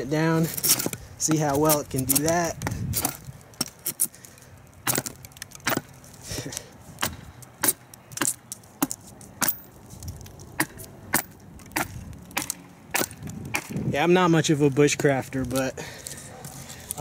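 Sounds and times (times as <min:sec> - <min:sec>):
knife chopping wood: 0:07.0 - 0:09.6, 0:10.6 - 0:13.8.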